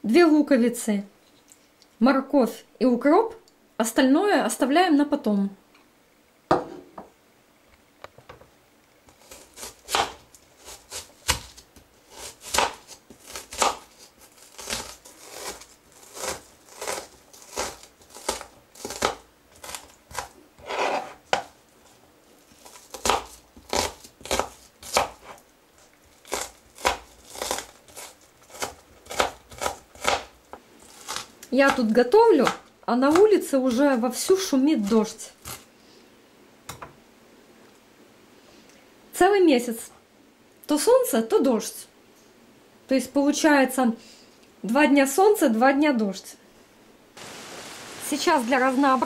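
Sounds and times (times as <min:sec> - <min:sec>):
knife chopping on cutting board: 0:09.3 - 0:13.9, 0:22.9 - 0:25.3.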